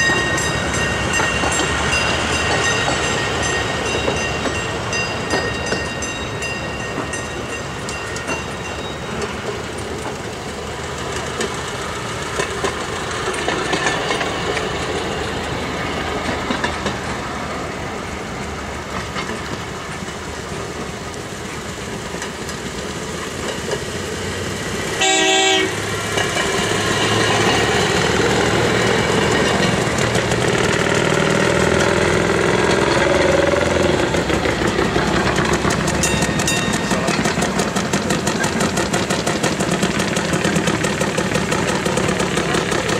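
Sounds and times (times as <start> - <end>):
rail motor cars running on track: 0.0 - 42.9
short horn blast: 25.0 - 25.8.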